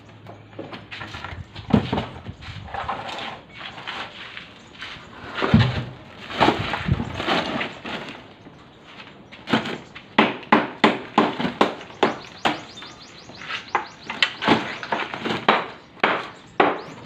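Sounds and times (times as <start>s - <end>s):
concrete rubble knocking and thudding: 5.4s - 7.8s
sharp evenly spaced taps: 10.1s - 17.0s.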